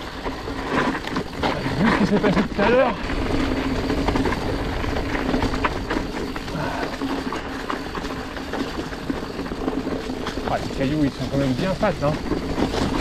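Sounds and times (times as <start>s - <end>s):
bike rattling over rocks: 0.0s - 13.0s
wind and trail rumble: 0.0s - 13.0s.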